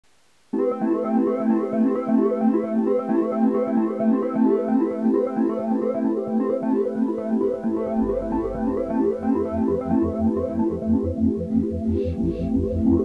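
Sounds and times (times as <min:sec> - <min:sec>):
repeating keyboard pattern: 0:00.6 - 0:13.0
low bass line: 0:07.8 - 0:13.0.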